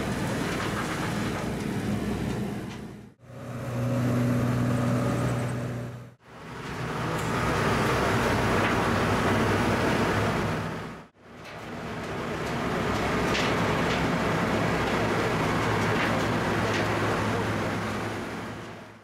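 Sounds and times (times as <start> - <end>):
diesel engine humming: 0.0 - 19.0.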